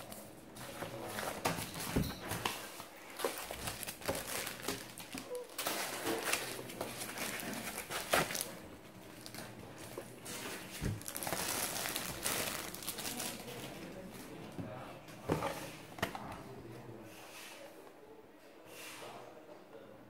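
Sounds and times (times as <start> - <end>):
plastic bag crinkling: 0.9 - 14.4.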